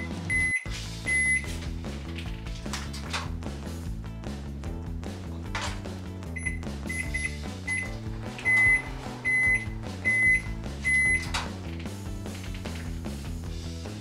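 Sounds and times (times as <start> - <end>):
microwave beeping: 0.0 - 1.5, 6.3 - 11.4
background music: 0.0 - 14.0.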